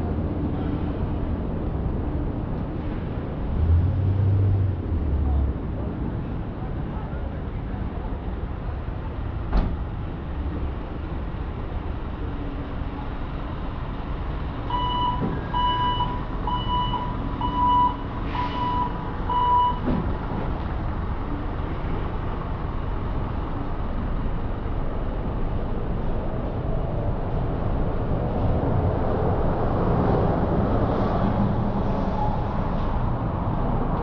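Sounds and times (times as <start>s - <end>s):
street traffic: 0.0s - 34.0s
reversing alarm beeps: 14.7s - 19.9s.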